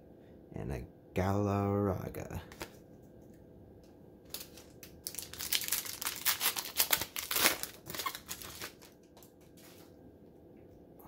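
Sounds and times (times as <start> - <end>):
foil wrapper crinkling: 4.3 - 9.9.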